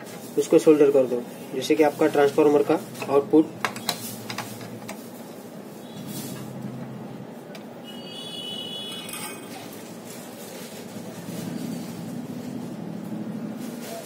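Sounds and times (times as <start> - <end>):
brief high tone: 7.9 - 9.9.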